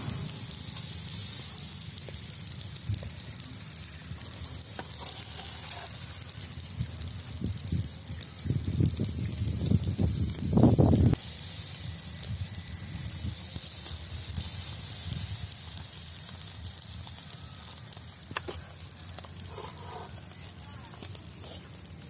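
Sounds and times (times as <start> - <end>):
loud low rumbling: 0.0 - 2.0
fish sizzling on charcoal grill: 0.0 - 22.0.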